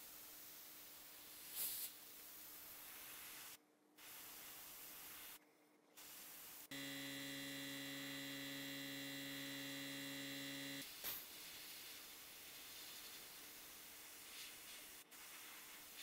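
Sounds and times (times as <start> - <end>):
soft air hiss: 0.0 - 5.4, 10.8 - 16.0
electrical hum: 6.7 - 10.8.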